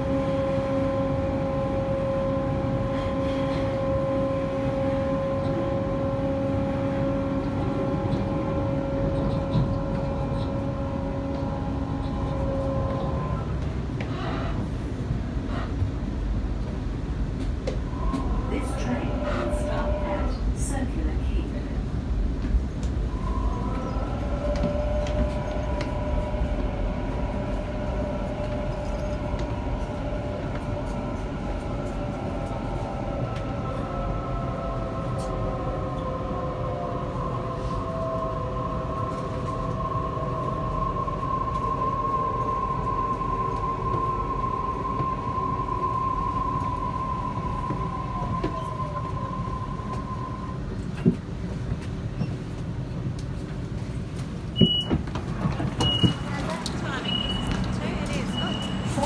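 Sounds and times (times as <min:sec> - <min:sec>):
wheels rumbling on rail: 0:00.0 - 0:59.0
electric train motors whining: 0:55.7 - 0:59.0.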